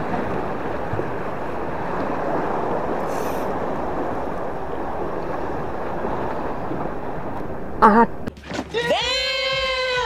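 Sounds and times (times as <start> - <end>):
sea waves rushing: 0.0 - 10.0
wind: 0.0 - 10.0.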